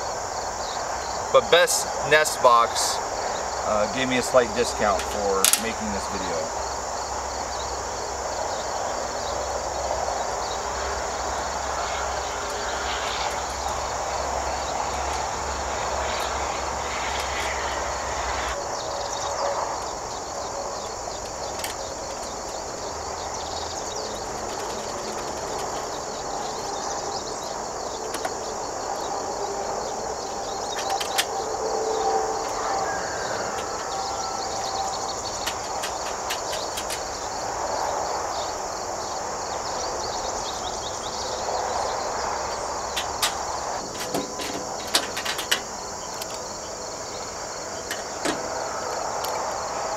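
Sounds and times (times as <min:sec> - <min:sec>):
insects trilling: 0:00.0 - 0:49.9
metal panels clinking: 0:04.7 - 0:06.3, 0:20.8 - 0:26.9, 0:30.6 - 0:31.5, 0:32.3 - 0:37.3, 0:42.9 - 0:46.7, 0:47.7 - 0:49.4.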